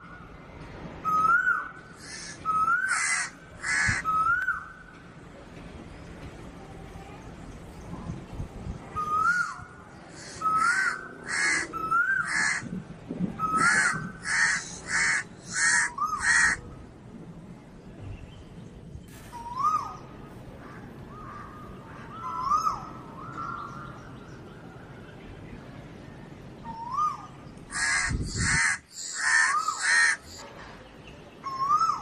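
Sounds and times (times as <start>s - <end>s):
crows cawing: 2.0s - 4.1s, 10.2s - 12.7s, 13.5s - 16.6s, 20.6s - 22.9s, 27.7s - 30.4s.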